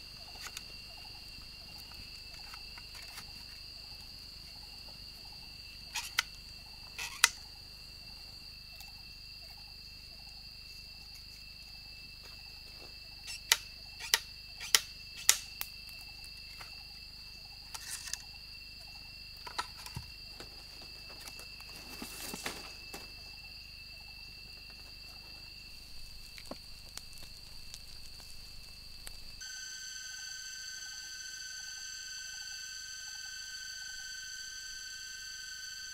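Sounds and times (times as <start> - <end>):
insects trilling: 0.0 - 35.9
bamboo tubes clicking and knocking: 13.3 - 15.7
rustling: 19.4 - 23.4, 24.4 - 29.4.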